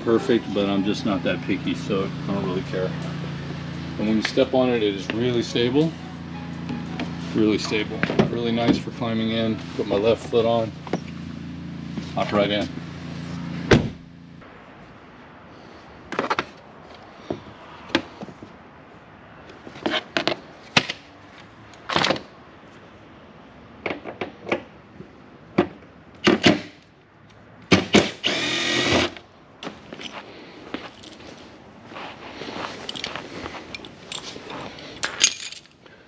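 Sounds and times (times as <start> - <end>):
cordless drill running: 28.2 - 29.1.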